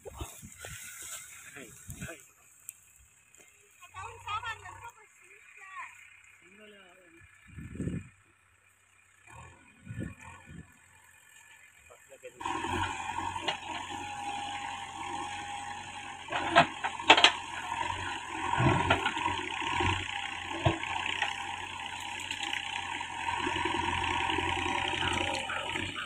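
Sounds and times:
diesel engine running under load: 0.0s - 26.0s.

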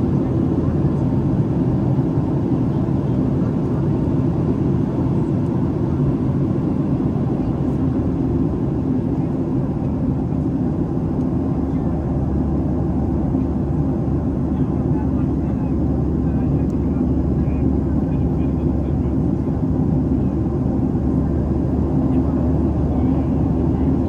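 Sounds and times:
jet airliner cabin rumble: 0.0s - 24.0s.

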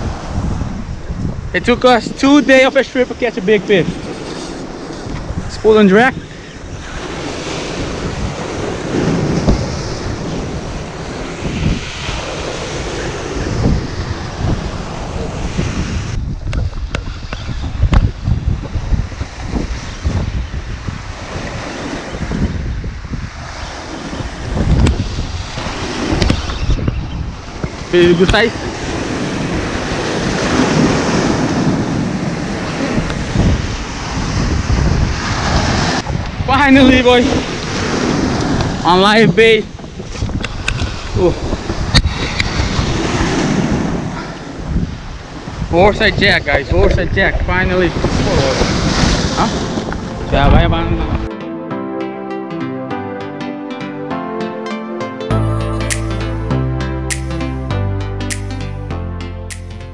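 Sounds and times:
surf washing over rocks: 0.0s - 4.0s, 4.6s - 16.5s, 27.3s - 51.0s
wind buffeting microphone: 0.0s - 51.3s.

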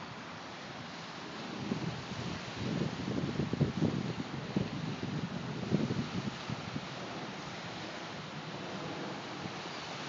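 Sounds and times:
wind buffeting microphone: 0.9s - 10.0s
steady hiss: 5.8s - 10.0s.

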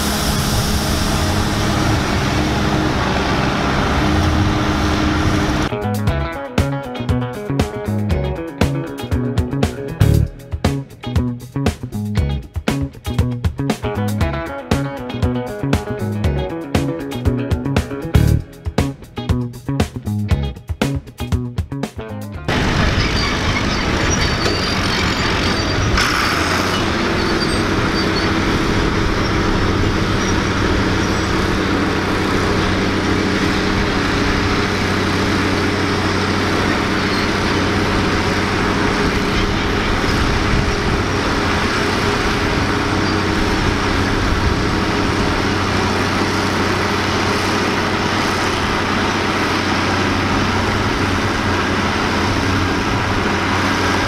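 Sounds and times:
tractor diesel engine under load: 0.0s - 5.8s, 22.5s - 54.0s.

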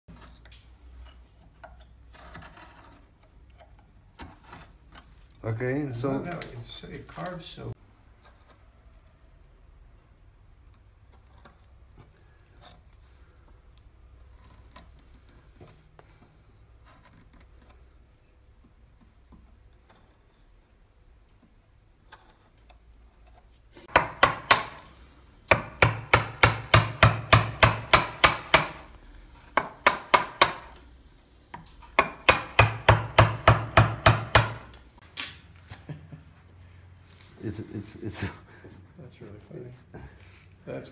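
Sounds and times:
mallet striking chisel: 23.9s - 24.9s, 25.5s - 28.9s, 29.6s - 30.8s, 31.5s - 34.8s.

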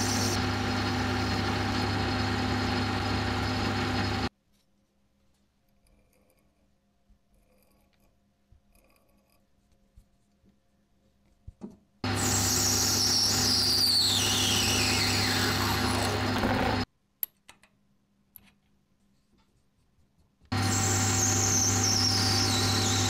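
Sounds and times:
power tool humming and whining: 0.0s - 4.3s, 12.0s - 16.9s, 20.5s - 23.0s.

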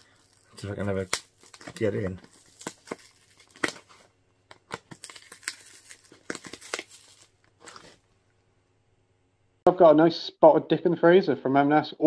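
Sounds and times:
tape and cardboard ripping: 0.0s - 8.0s.

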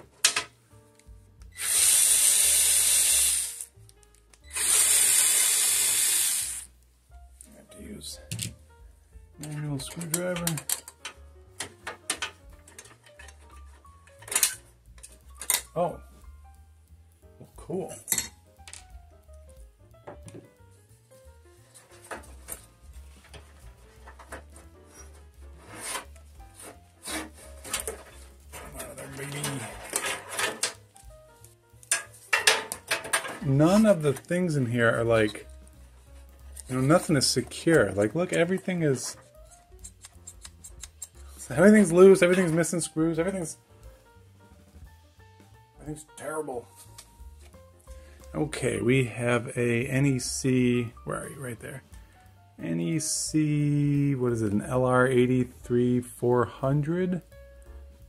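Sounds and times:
electric screwdriver whirring: 1.5s - 3.7s, 4.5s - 6.7s.

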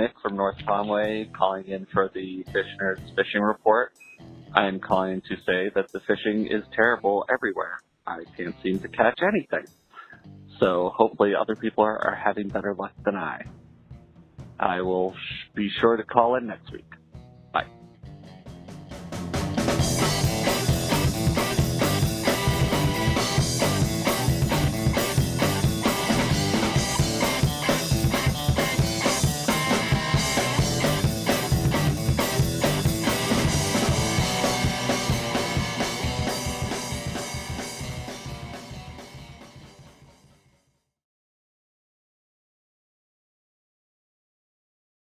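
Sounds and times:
music with drum kit beat: 8.7s - 10.8s, 12.0s - 15.6s, 16.6s - 40.3s.

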